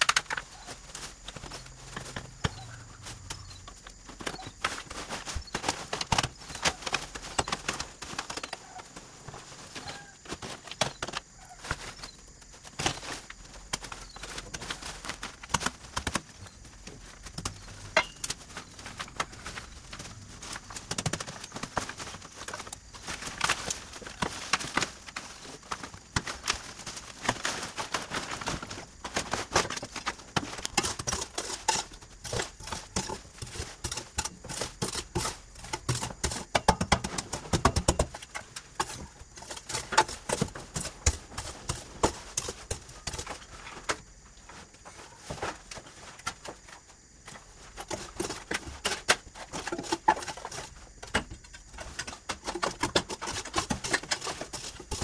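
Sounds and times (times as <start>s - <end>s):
hard objects knocking and clicking: 12.7s - 44.0s, 47.8s - 55.0s.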